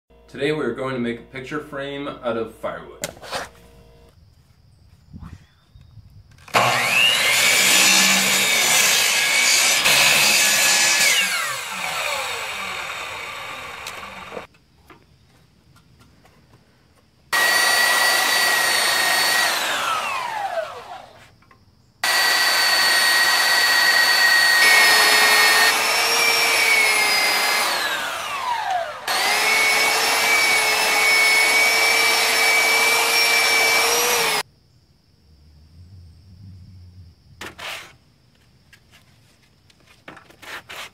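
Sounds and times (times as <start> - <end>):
mitre saw cutting log: 6.4 - 14.5, 17.4 - 21.2, 22.0 - 34.4, 37.4 - 38.0
power tool motor whine: 6.4 - 14.5, 17.4 - 21.3, 22.0 - 34.4.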